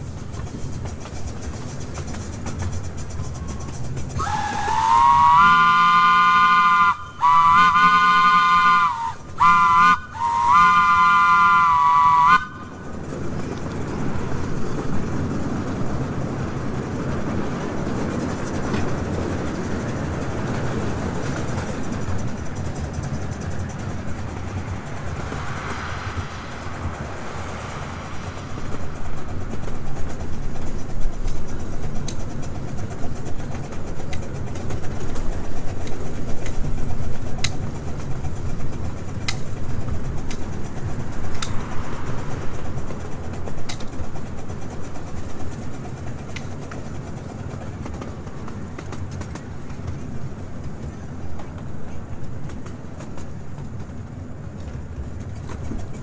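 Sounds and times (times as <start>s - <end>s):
miniature train rumbling on track: 0.0s - 56.0s
steam chime whistle blasts: 4.2s - 12.7s.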